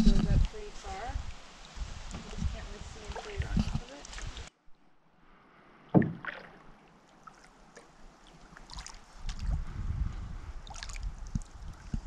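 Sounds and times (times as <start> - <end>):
low rumbling: 0.0 - 4.5, 9.3 - 12.0
paddle splashing in water: 0.8 - 4.5, 5.9 - 9.6, 10.6 - 12.0
sharp knock: 6.0 - 6.3.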